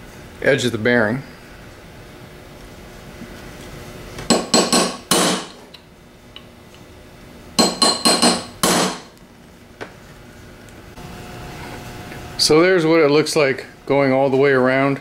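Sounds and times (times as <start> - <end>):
hammer striking chisel on metal: 4.3 - 5.6, 7.6 - 9.1.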